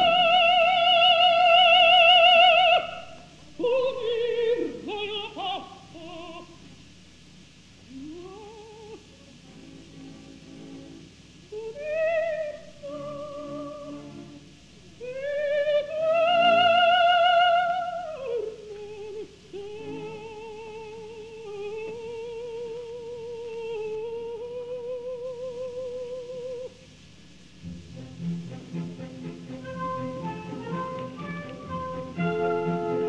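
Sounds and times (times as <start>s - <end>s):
soprano singing with vibrato: 0.0s - 6.6s, 7.9s - 9.2s, 11.5s - 26.8s, 29.6s - 33.0s
soft orchestra: 0.0s - 33.0s.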